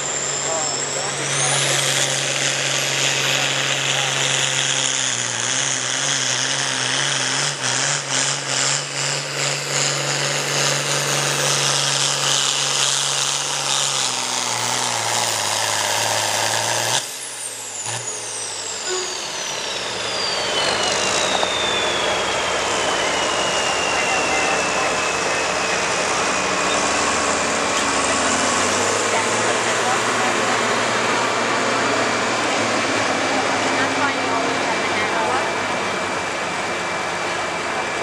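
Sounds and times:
diesel tractor engine under load: 0.0 - 38.0
high turbo whistle: 17.0 - 30.4.

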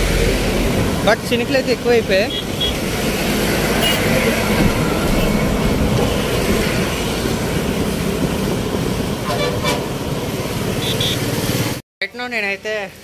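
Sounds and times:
bus passing: 0.0 - 11.8
traffic rumble: 0.0 - 11.8
motor scooters passing: 10.4 - 11.8.

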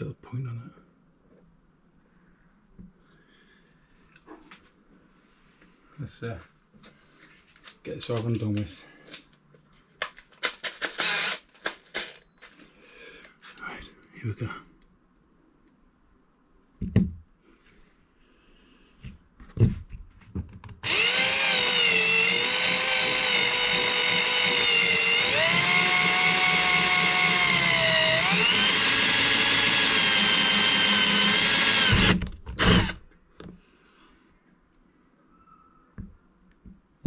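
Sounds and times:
power drill drilling plastic: 10.4 - 12.2, 20.8 - 33.0.

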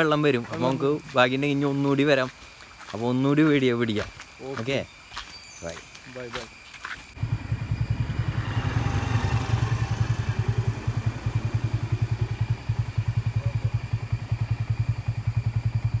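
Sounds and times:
motorcycle engine idling: 7.2 - 16.0.

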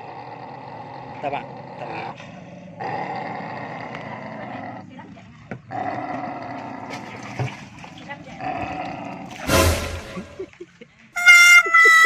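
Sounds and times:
dogs growling: 0.0 - 7.1.

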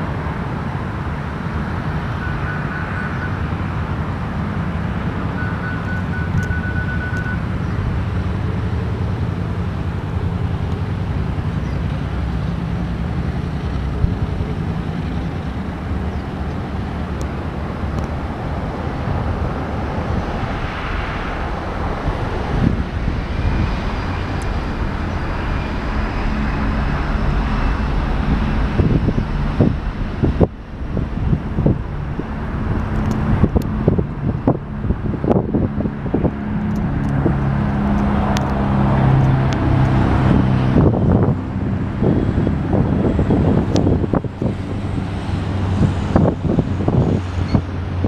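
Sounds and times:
jet engines rumbling: 0.0 - 48.0
faint high whine: 20.6 - 34.8.

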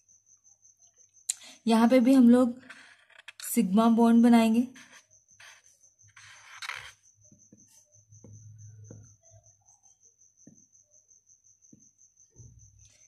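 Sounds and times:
marker pen drawing on paper: 2.4 - 3.5, 4.4 - 7.0.

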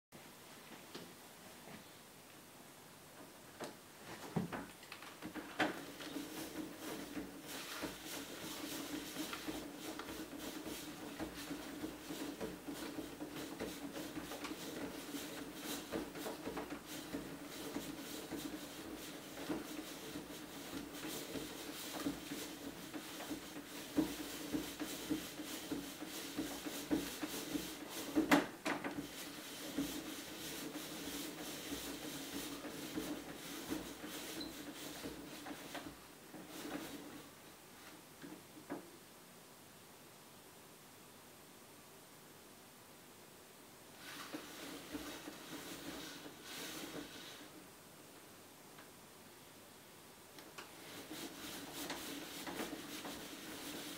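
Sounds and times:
roller blind material rubbing: 4.0 - 38.5, 43.9 - 47.8, 50.5 - 53.9.

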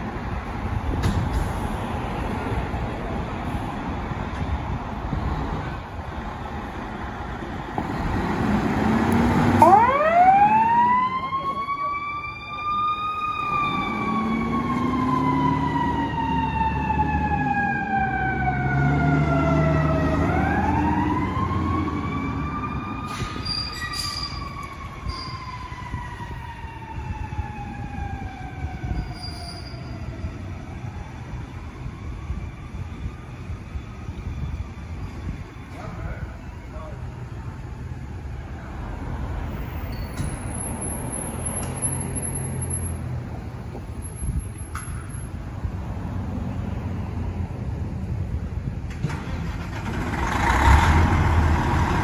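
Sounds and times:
fire engine siren: 8.0 - 38.5
truck engine rumble: 30.0 - 52.0.

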